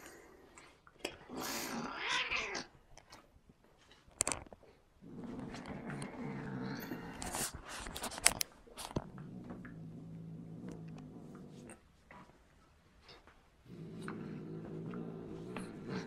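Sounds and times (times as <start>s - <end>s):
low steady growl: 5.0s - 7.6s, 8.9s - 12.2s, 13.6s - 16.0s.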